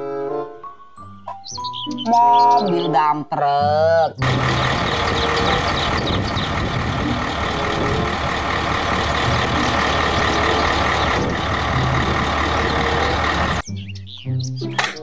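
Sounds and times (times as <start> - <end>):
diesel truck engine humming: 4.2 - 13.6.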